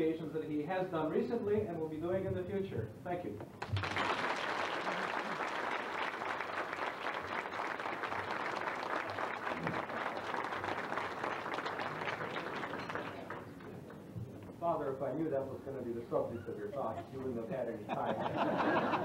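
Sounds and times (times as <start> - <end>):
audience applauding: 3.6 - 14.0.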